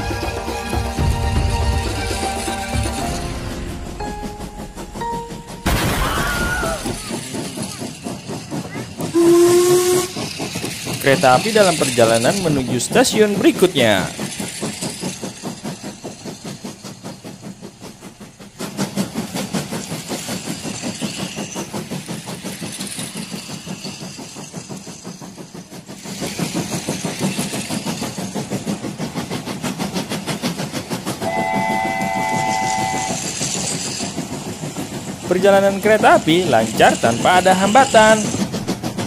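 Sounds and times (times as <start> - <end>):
toy train clicking rattle: 6.5 - 39.0
steady electronic tone: 31.2 - 33.2.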